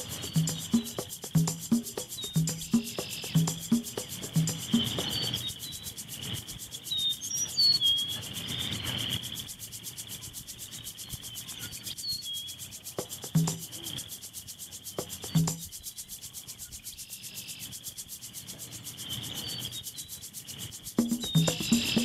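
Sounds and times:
bird chirps: 0.0s - 6.0s, 6.7s - 8.9s, 21.0s - 22.0s
insect drone: 0.0s - 22.0s.

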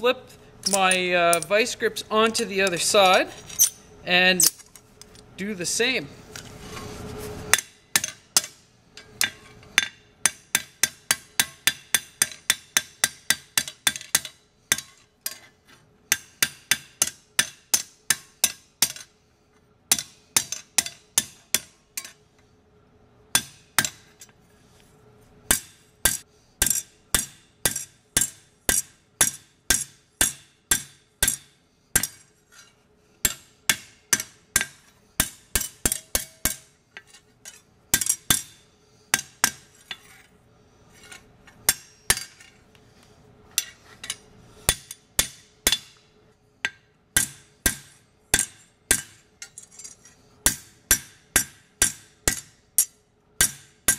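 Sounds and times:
hammer striking steel bar: 7.5s - 15.5s, 16.1s - 19.1s, 19.9s - 22.2s, 23.3s - 24.1s, 25.5s - 37.2s, 38.0s - 40.2s, 41.6s - 42.5s, 43.6s - 49.6s, 50.4s - 53.9s.

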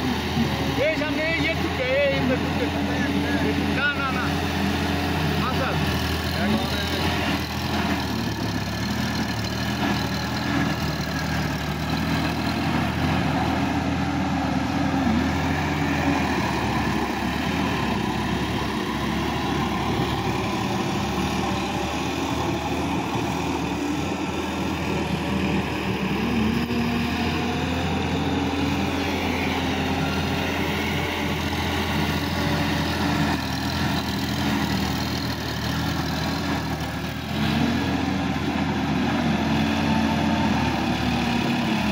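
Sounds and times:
tractor diesel engine running: 0.0s - 41.9s.

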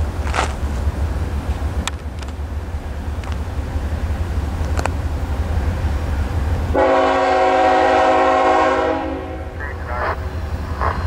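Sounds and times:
locomotive air horn blast: 6.7s - 10.1s.

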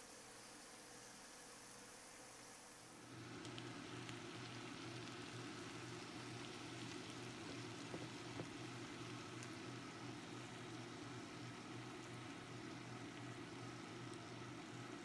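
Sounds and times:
noodles sizzling in a wok: 2.5s - 15.0s
low steady hum: 2.9s - 15.0s
faint clicks: 3.4s - 5.2s.

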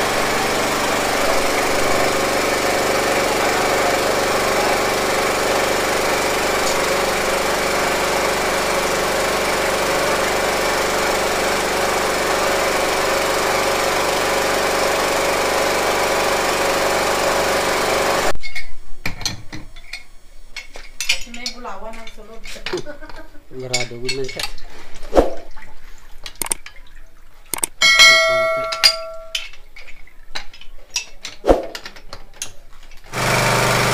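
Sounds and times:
water pump engine running: 0.0s - 18.3s, 33.1s - 33.9s.

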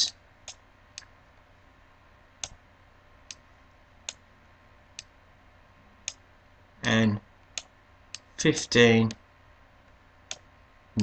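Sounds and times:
sharp clicks of pointing device: 0.4s - 1.1s.

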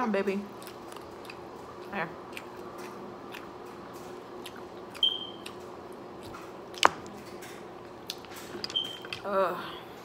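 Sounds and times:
faint steady hum: 0.0s - 10.0s
wet chewing and lip smacks: 0.5s - 7.1s, 8.0s - 9.2s.

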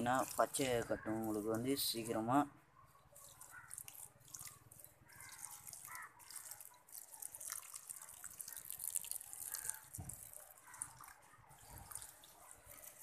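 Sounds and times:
water pouring onto wet soil: 0.0s - 13.0s.

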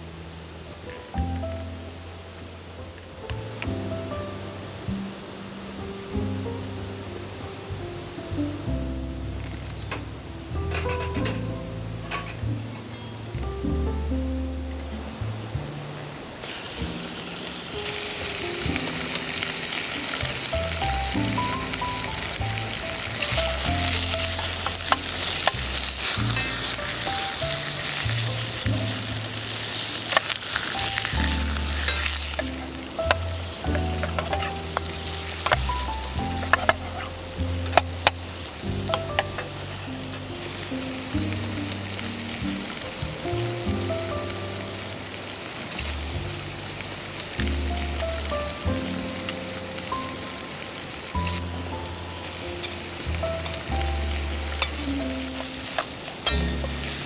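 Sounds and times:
background music with bass line: 0.0s - 16.2s, 16.8s - 57.0s
food sizzling in a frying pan: 16.4s - 57.0s
stirring taps and clicks: 23.2s - 28.9s, 31.9s - 38.2s.

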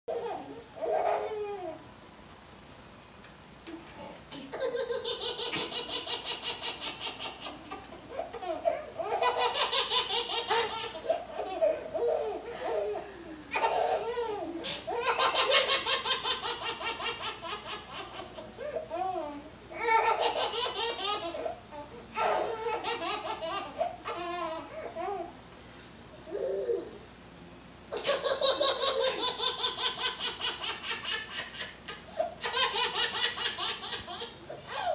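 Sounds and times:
baby laughing: 4.5s - 21.6s, 22.2s - 25.2s, 27.9s - 34.9s.

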